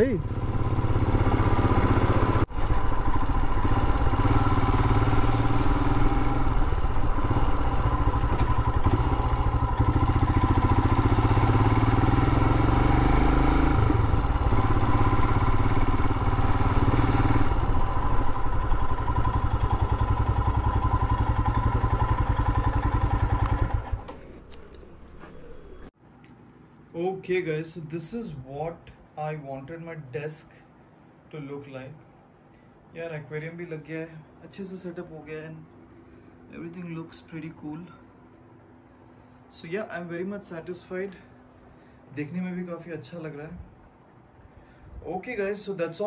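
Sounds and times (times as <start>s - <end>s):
motorcycle engine running: 0.0s - 25.9s.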